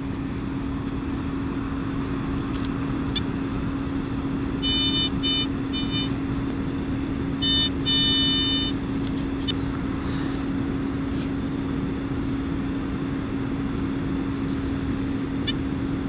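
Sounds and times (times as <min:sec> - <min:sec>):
steady low hum: 0:00.0 - 0:16.0
pinpointer buzzing alert tones: 0:04.6 - 0:06.2, 0:07.4 - 0:08.8.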